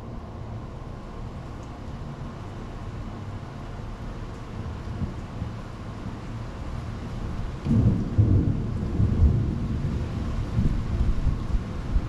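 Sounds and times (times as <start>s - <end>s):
wind buffeting microphone: 7.3s - 12.0s.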